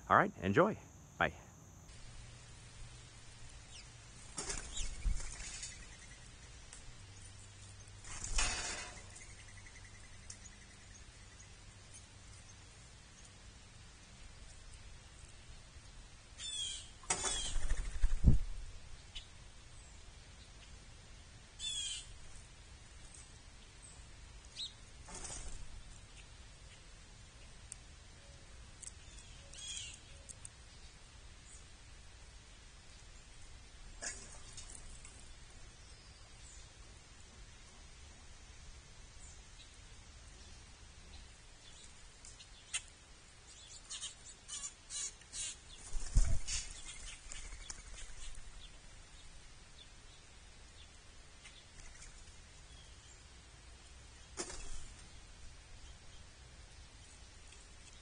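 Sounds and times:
faint outdoor background: 0:00.0 - 0:58.0
songbirds calling: 0:01.5 - 0:13.4, 0:14.0 - 0:18.2, 0:21.6 - 0:22.4, 0:23.0 - 0:31.8, 0:39.1 - 0:56.4.

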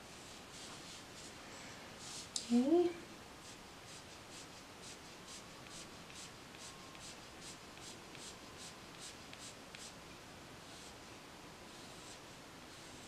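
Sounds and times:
pencil scratching on paper: 0:03.4 - 0:10.0.

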